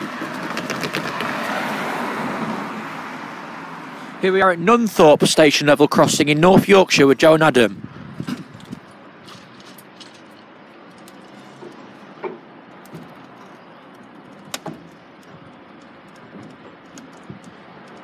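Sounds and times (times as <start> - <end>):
outdoor background noise: 0.0 - 18.0.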